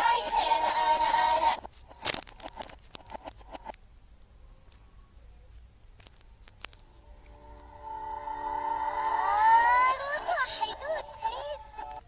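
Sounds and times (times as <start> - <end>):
children's song with synthetic voice: 0.0 - 1.6, 6.9 - 12.0
crackling clicks and glitches: 0.0 - 7.9, 8.7 - 12.0.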